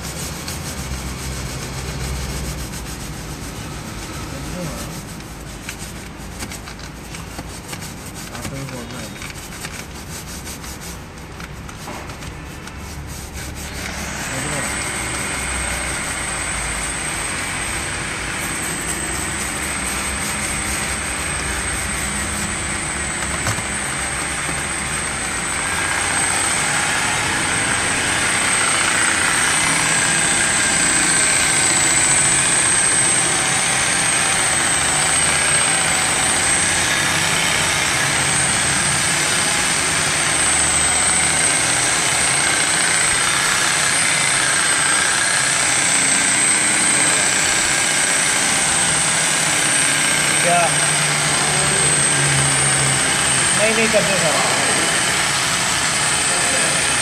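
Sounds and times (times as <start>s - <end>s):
rotary polisher motor whine: 12.6s - 57.0s.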